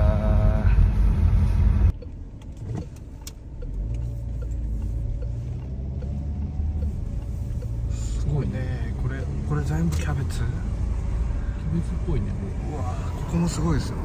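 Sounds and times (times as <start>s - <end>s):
car road and engine rumble: 0.0s - 14.0s.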